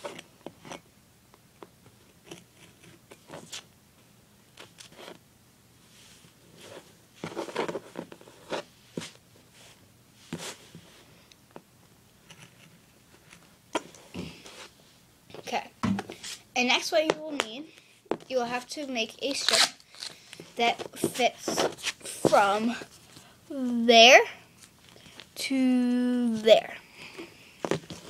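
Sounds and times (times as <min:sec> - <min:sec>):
tape and paper rustling: 0:19.3 - 0:23.3.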